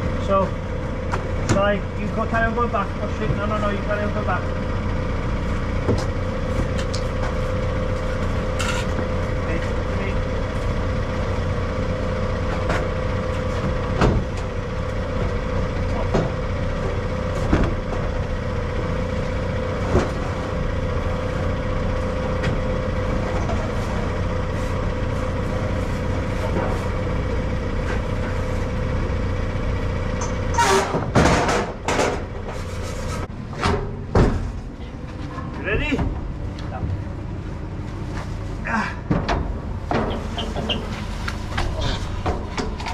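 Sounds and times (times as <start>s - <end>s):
diesel engine running: 0.0s - 42.9s
sharp knocks and clanks: 12.5s - 14.5s, 30.2s - 37.0s, 39.0s - 42.9s.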